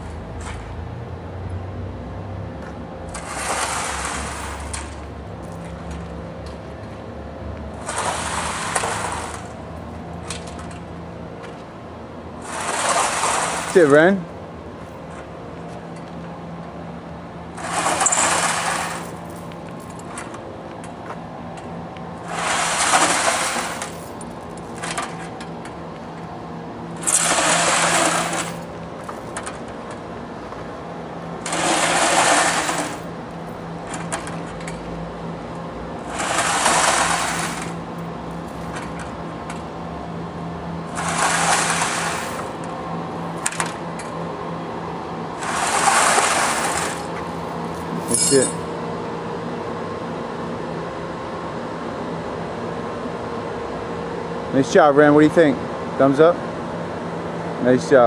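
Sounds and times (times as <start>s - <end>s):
steady low hum: 0.0s - 58.0s
metal sled scraping on concrete: 3.1s - 4.8s, 12.4s - 13.9s, 17.6s - 19.3s, 22.3s - 24.1s, 27.0s - 28.7s, 31.4s - 33.2s, 36.0s - 37.9s, 40.9s - 42.6s, 45.4s - 48.7s.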